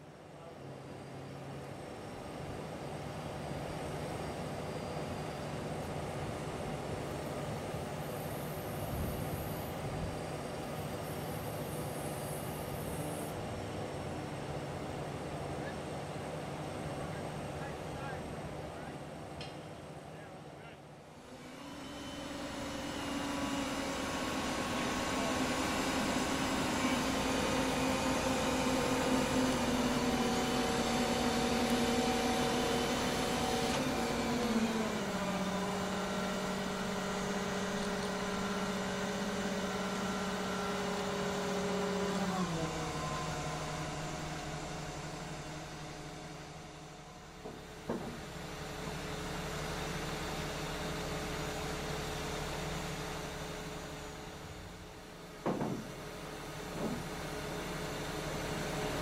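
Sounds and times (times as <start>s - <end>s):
heavy diesel crane engine: 0.0s - 59.0s
short knock: 55.4s - 55.9s.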